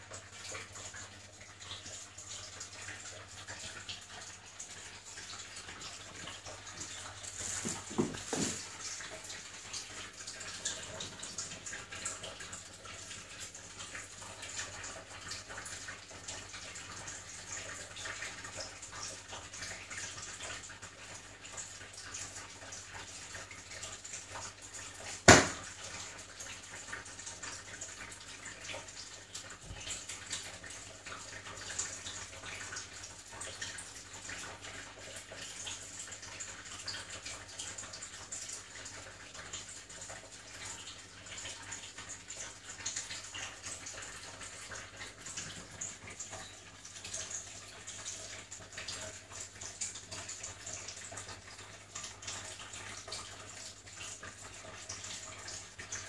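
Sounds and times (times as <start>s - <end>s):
sharp knock: 25.3s - 25.6s.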